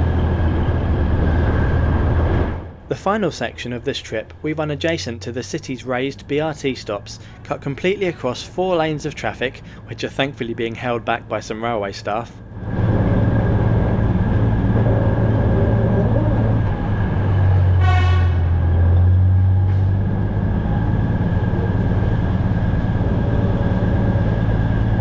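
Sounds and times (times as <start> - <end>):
diesel engine humming: 0.0 - 25.0
short horn blast: 17.7 - 18.6.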